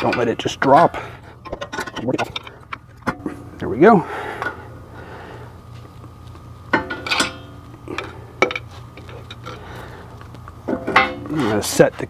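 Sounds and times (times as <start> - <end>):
metal clinking: 6.7 - 9.6, 10.7 - 11.4.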